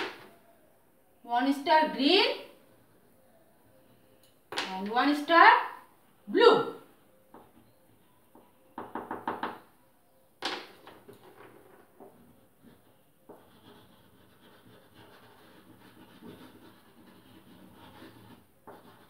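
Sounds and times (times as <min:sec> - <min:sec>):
crayon scribbling on paper: 0:12.1 - 0:19.0.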